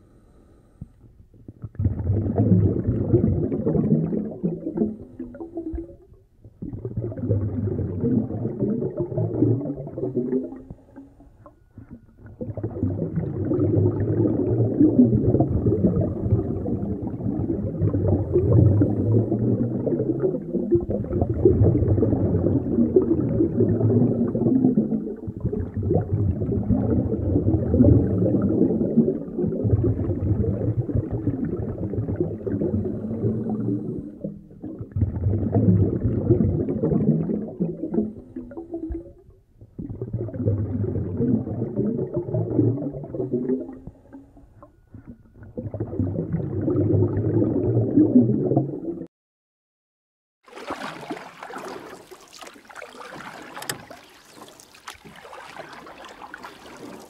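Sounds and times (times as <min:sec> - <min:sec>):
muffled underwater rumble and sloshing: 0:00.0 - 0:49.1
stream rippling and splashing: 0:50.5 - 0:57.0.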